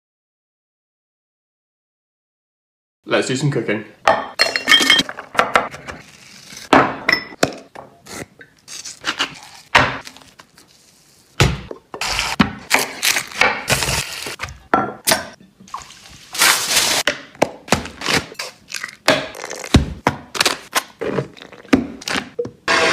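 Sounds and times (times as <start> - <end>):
metal and glassware clinking: 4.1 - 5.1, 6.9 - 7.4
aluminium foil crinkling: 12.8 - 14.4, 16.3 - 17.0.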